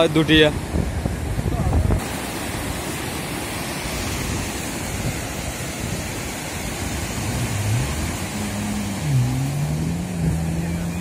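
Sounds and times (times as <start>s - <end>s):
breaking surf: 0.0s - 11.0s
wind buffeting microphone: 0.0s - 11.0s
jet ski engine revving: 4.8s - 11.0s.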